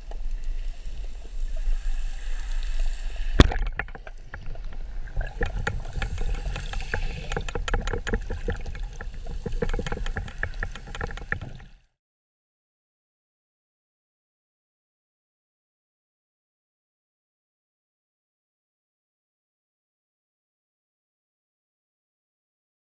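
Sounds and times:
irregular clicks and knocks: 0:03.4 - 0:11.7
low underwater rumble: 0:03.4 - 0:11.8.

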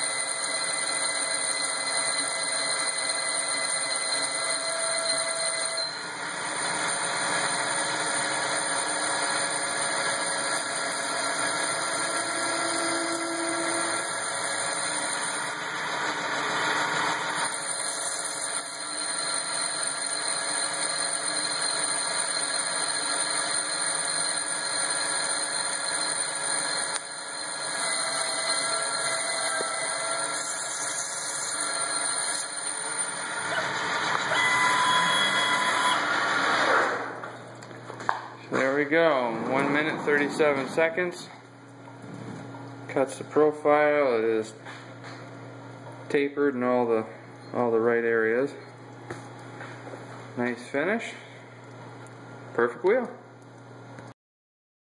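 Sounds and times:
lathe machine whine: 0:00.0 - 0:37.4.

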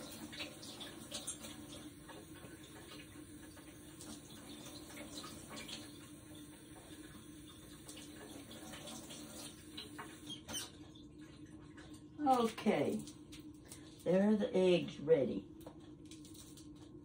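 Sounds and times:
faucet water splashing: 0:00.0 - 0:13.6.

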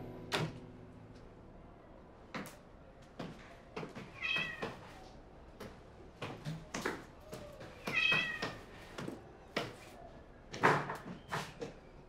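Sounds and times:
footsteps on stone stairs: 0:03.1 - 0:05.0
cat meowing: 0:04.2 - 0:04.7, 0:07.8 - 0:08.6.

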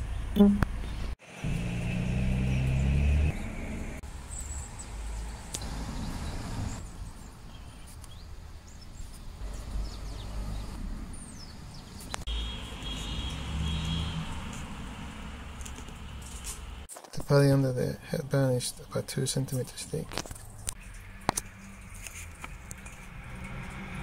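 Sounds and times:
low rumble of road traffic: 0:00.0 - 0:24.0
small birds chirping: 0:02.4 - 0:14.2.

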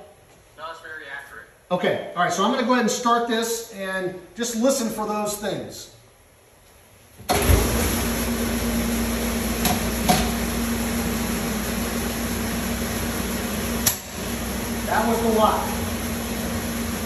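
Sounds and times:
spraying water over motor hum: 0:07.3 - 0:17.0.

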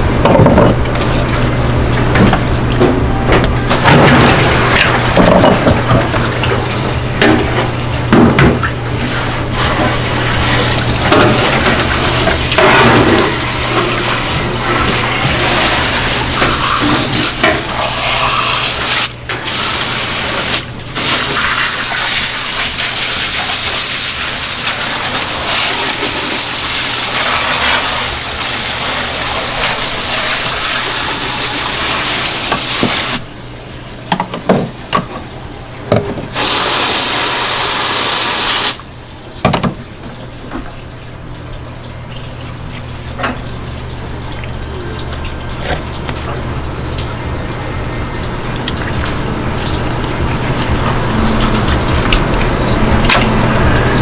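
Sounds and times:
water spraying from hose nozzle: 0:13.3 - 0:33.2, 0:36.3 - 0:38.8.

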